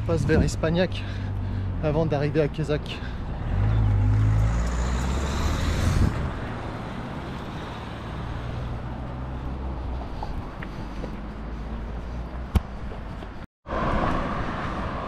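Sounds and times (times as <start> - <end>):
low traffic rumble: 0.0 - 15.0
vehicle passing close by: 3.0 - 12.3, 13.7 - 15.0.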